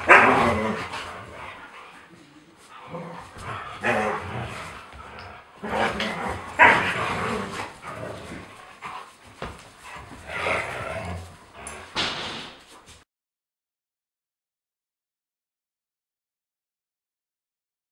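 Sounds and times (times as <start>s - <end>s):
huskies barking and yipping: 0.0s - 1.6s, 5.6s - 10.7s.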